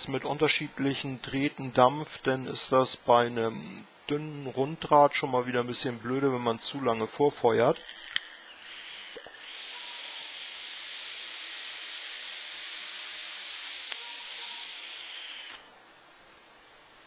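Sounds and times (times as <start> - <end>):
vape draw hiss: 7.9 - 15.7
small click: 15.5 - 15.7.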